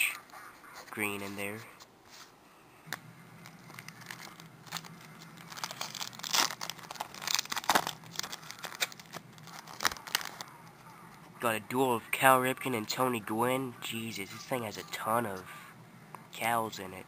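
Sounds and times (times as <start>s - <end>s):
foil wrapper crinkling: 2.9s - 10.9s.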